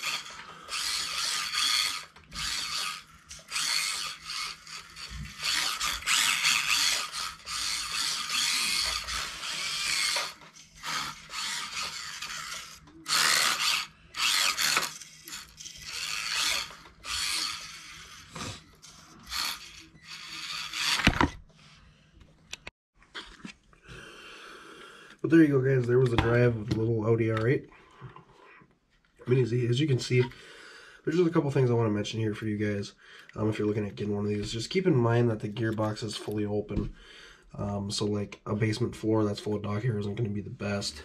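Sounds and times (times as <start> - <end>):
toy car electric motor whining: 0.0 - 21.8.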